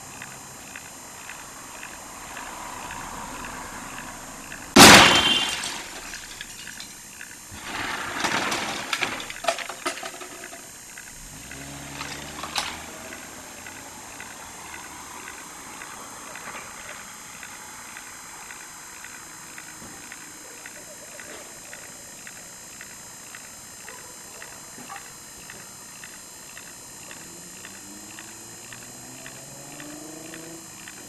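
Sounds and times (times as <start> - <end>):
vehicle crash: 4.7 - 6.7, 7.5 - 9.4.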